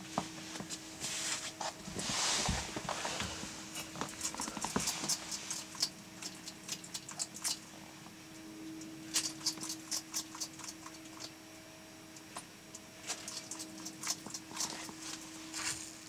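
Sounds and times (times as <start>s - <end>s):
lizard crunching insects: 3.7s - 7.8s, 9.0s - 11.4s, 12.2s - 16.0s.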